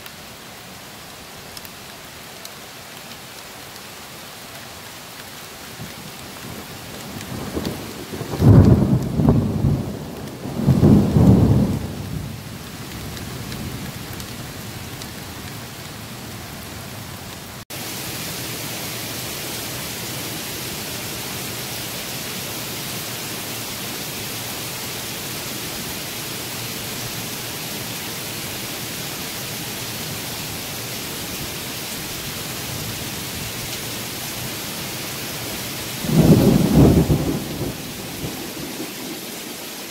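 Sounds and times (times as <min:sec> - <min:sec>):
heavy downpour hiss: 0:00.0 - 0:39.9
steady rain: 0:00.0 - 0:39.9
thunder rumbles: 0:06.5 - 0:15.1, 0:36.0 - 0:39.8.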